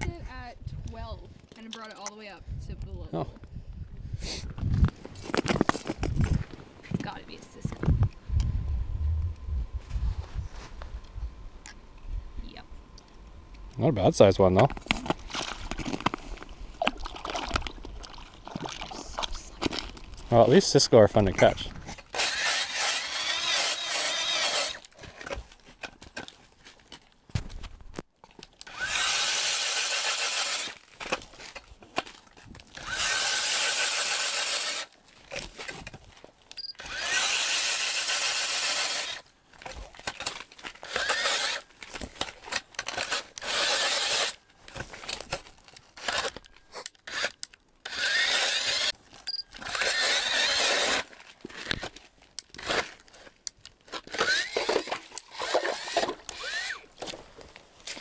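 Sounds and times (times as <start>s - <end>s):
slush and ice crunching: 14.9s - 20.6s, 28.7s - 58.0s
ice auger drill whining: 22.1s - 25.4s, 28.6s - 30.8s, 32.7s - 34.9s, 36.7s - 39.3s, 40.8s - 41.7s, 42.8s - 44.4s, 47.1s - 51.1s, 54.1s - 57.2s.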